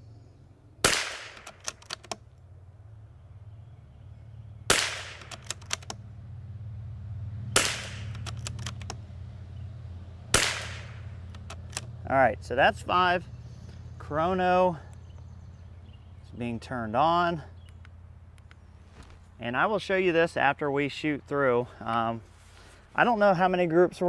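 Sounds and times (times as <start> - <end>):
steady low hum: 0.0 - 24.0
rifle shots: 0.8 - 1.8, 4.7 - 5.6, 7.5 - 8.8, 10.3 - 11.8
rifle bolt clicks: 0.9 - 2.2, 4.7 - 6.0, 7.6 - 9.0, 10.4 - 11.9.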